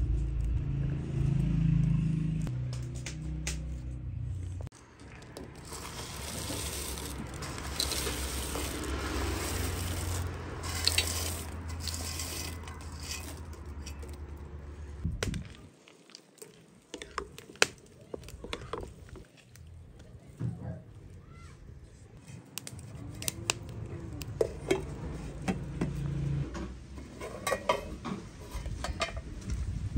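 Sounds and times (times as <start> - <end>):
dried fruit rustling into water: 5.4 - 19.6.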